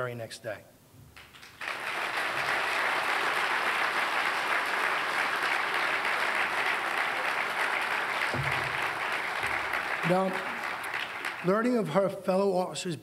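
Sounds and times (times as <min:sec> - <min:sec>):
audience applauding: 0:01.2 - 0:12.1.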